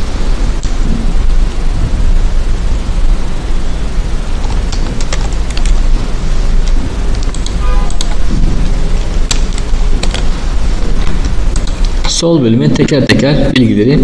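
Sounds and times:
microphone hiss and rumble: 0.0s - 14.0s
keyboard keys clicking: 4.4s - 5.8s, 6.6s - 8.2s, 9.0s - 10.3s.

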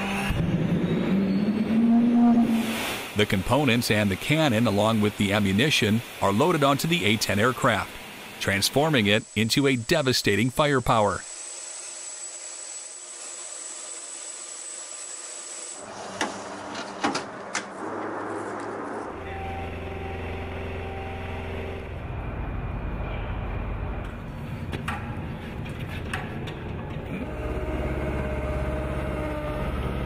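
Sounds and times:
vehicle engine running: 18.1s - 24.4s, 27.0s - 30.0s.

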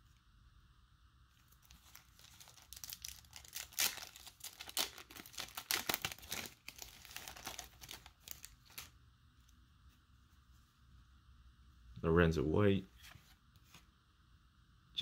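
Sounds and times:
card pack wrapper tearing: 1.6s - 8.9s.

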